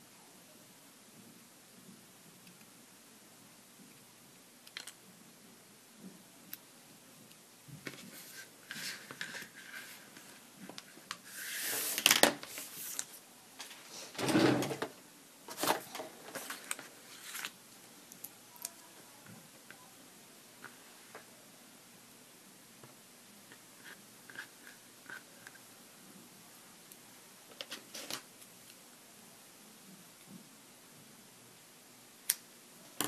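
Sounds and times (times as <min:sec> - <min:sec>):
paper scraps brushed and shuffled: 0:08.0 - 0:10.4, 0:11.2 - 0:14.1, 0:15.5 - 0:17.5.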